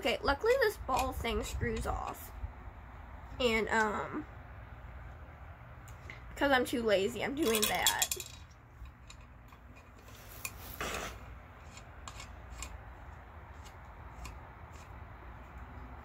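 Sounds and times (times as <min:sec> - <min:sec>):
faint clicks and rubbing of small parts: 0:07.4 - 0:16.0
brief scrape: 0:10.0 - 0:11.3.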